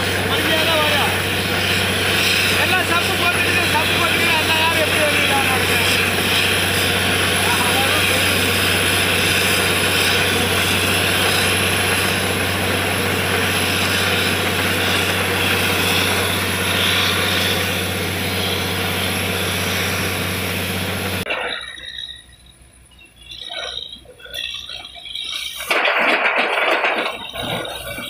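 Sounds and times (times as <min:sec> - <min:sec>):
loud hiss of blowing water: 0:00.0 - 0:21.2
drilling rig engine hum: 0:00.0 - 0:28.0.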